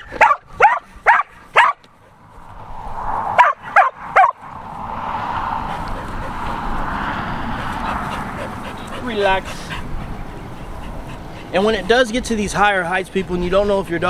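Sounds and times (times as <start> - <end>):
dog barking: 0.0 - 1.8, 3.4 - 4.4.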